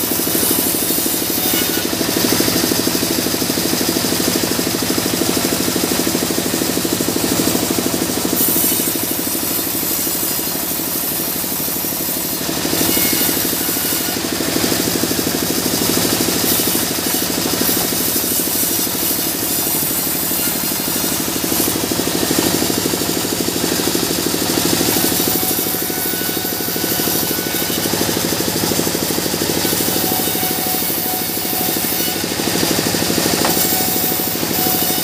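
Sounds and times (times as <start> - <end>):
band saw ripping wood: 11.0 - 35.0.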